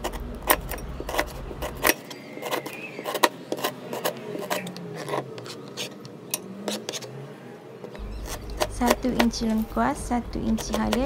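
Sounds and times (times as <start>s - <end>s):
knife chopping on plastic board: 0.0s - 5.9s, 8.2s - 11.0s.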